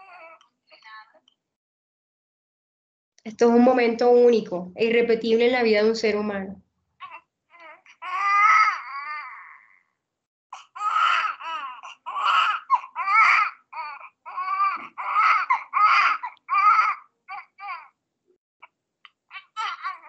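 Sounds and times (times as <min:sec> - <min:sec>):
newborn baby crying: 0:00.0 - 0:00.9, 0:07.0 - 0:18.0, 0:18.6 - 0:20.0.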